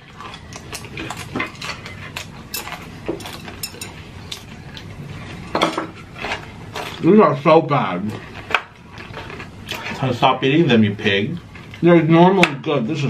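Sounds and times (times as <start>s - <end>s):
chopsticks clicking on dishes: 0.6s - 4.5s.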